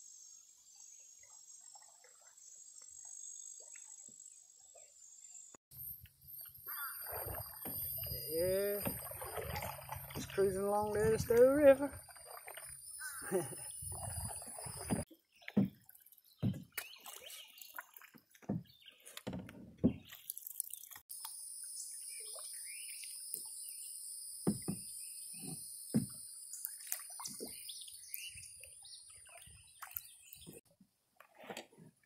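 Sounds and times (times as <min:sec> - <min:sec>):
paddle splashing through water: 0:06.5 - 0:20.5, 0:31.2 - 0:32.0.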